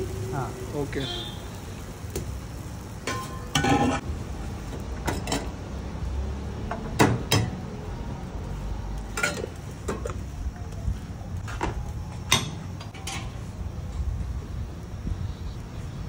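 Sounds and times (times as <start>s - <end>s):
metal utensils clinking on griddle: 3.0s - 4.0s, 5.0s - 5.6s, 9.1s - 10.2s, 12.3s - 13.5s.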